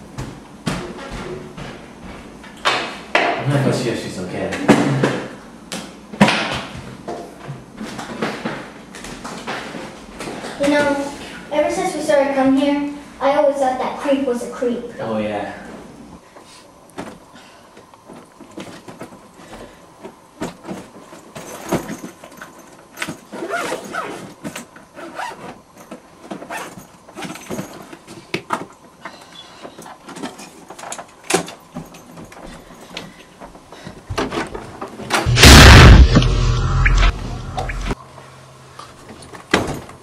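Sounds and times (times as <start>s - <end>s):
loud bass-heavy burst: 35.3s - 38.0s.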